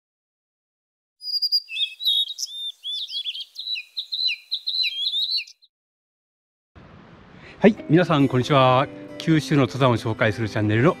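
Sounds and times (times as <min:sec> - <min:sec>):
songbirds chirping: 0:01.2 - 0:05.7.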